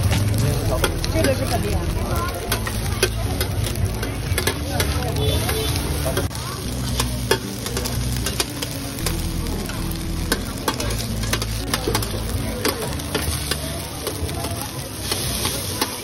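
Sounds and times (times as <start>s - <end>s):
food sizzling in oil: 0.0s - 16.0s
metal spatula scraping griddle: 6.9s - 16.0s.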